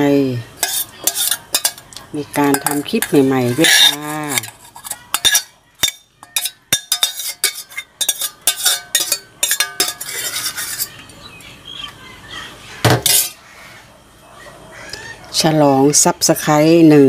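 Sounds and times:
metal cutlery clinking on dishes: 0:00.6 - 0:11.0.

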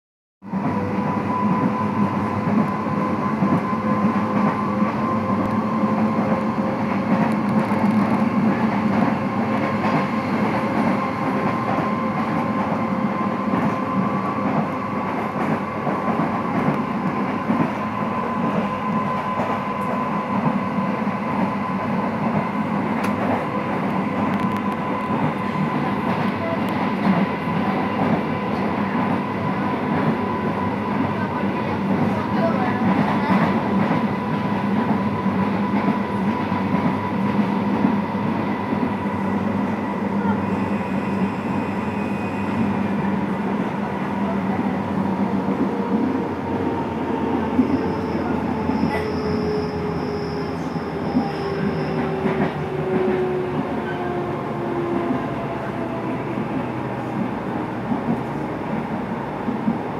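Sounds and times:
electric train running rumble: 0:00.4 - 0:59.9.

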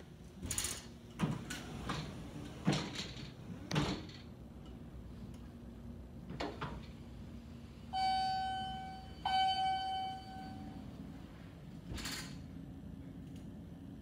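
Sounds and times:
elevator chime dings: 0:07.9 - 0:11.1.

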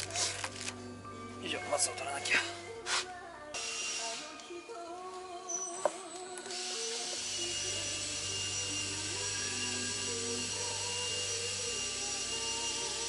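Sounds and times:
hot-air blower running: 0:06.5 - 0:13.0.

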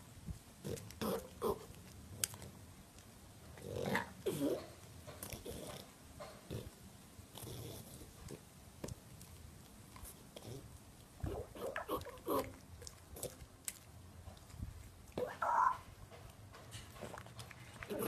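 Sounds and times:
dog chewing and lip-smacking: 0:07.4 - 0:18.0.

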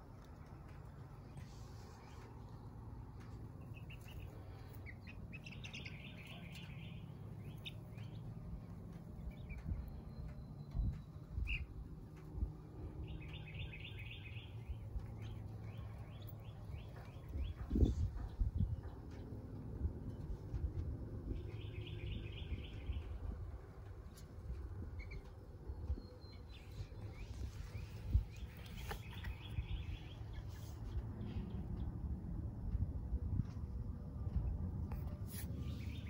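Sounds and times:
low rumble: 0:00.0 - 0:36.0
chicks peeping: 0:03.1 - 0:09.9.

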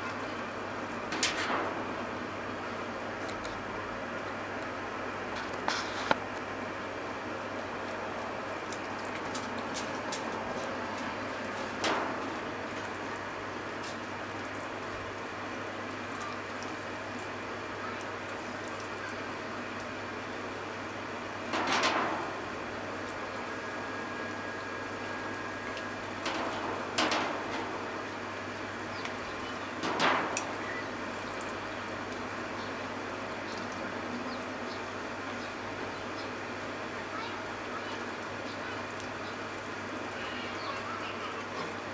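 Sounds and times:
water bubbling in a pot: 0:06.8 - 0:10.1, 0:10.8 - 0:40.2.

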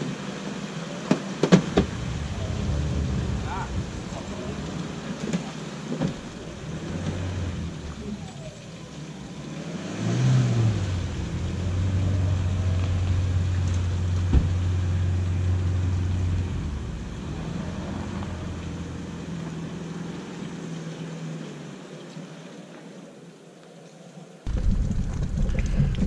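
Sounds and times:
vehicle engine running: 0:00.0 - 0:21.9.

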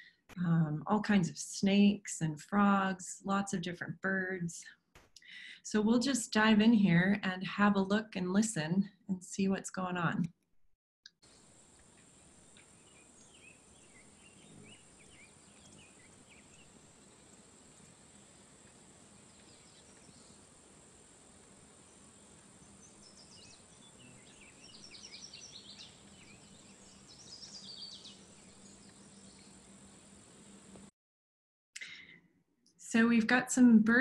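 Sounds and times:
distant bird singing: 0:11.3 - 0:30.6
steady faint hiss: 0:11.3 - 0:30.9
bird singing bright high notes: 0:22.7 - 0:29.5.

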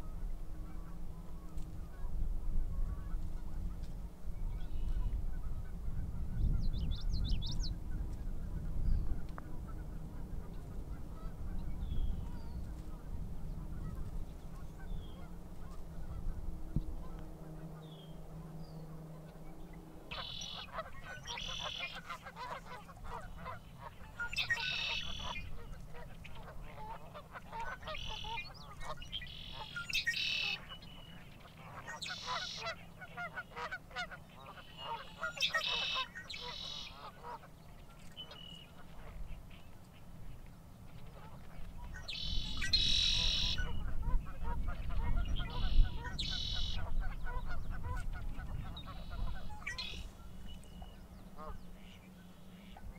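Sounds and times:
harsh rasping bird calls: 0:17.0 - 0:40.1, 0:40.9 - 0:52.9
high bird chirps: 0:20.1 - 0:22.0, 0:41.9 - 0:43.8, 0:45.2 - 0:46.8.

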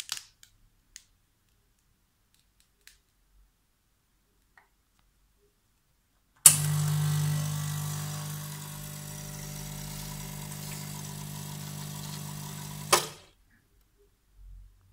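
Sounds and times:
pump switch click: 0:06.5 - 0:13.2
vibratory pump humming: 0:06.5 - 0:13.3.

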